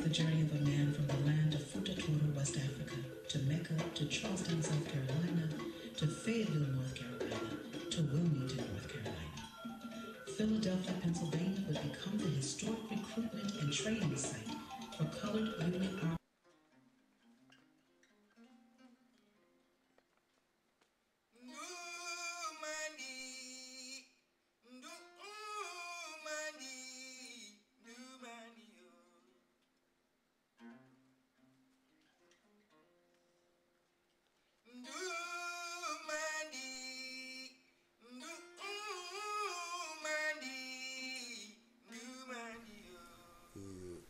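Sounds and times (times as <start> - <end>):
plucked acoustic guitar: 0.0 - 20.1, 30.6 - 33.4
man singing: 21.5 - 24.0, 24.7 - 29.3, 34.8 - 44.0.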